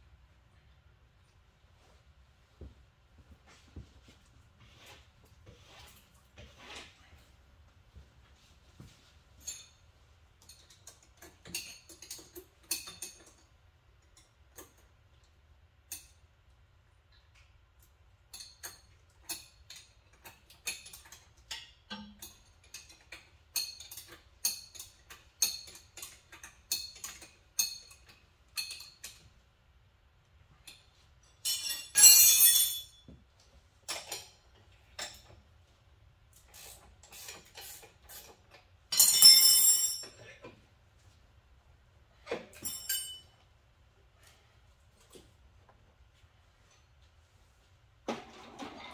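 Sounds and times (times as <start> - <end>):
metal tools clinking: 9.4 - 13.5, 18.3 - 29.3, 30.6 - 33.1, 33.8 - 35.4, 38.9 - 40.4, 42.2 - 43.4.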